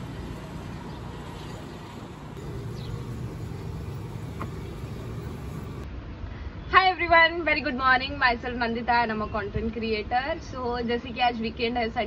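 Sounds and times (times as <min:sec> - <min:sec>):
distant road traffic rumble: 0:00.0 - 0:05.9.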